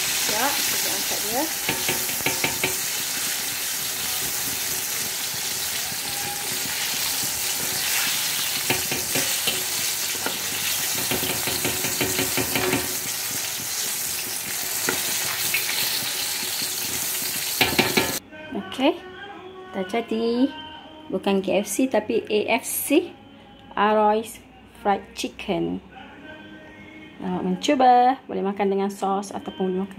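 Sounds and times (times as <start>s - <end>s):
chicken deep-frying in oil: 0.0s - 18.2s.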